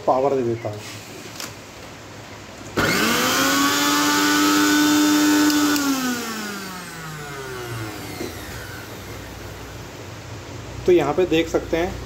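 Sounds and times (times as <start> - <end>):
mixer grinder motor whining: 2.8 - 9.7.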